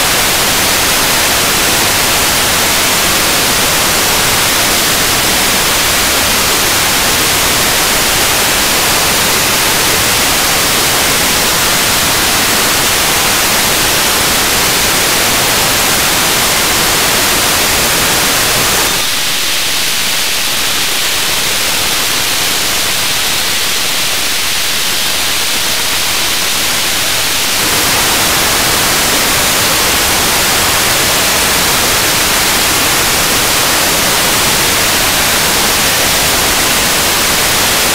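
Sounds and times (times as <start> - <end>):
radio static hiss: 0.0 - 37.9.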